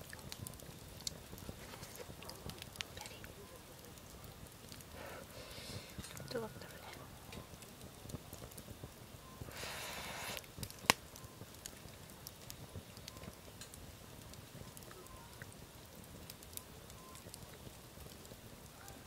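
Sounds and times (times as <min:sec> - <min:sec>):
campfire crackling and popping: 0:00.0 - 0:19.0
soft rustle: 0:00.1 - 0:08.6.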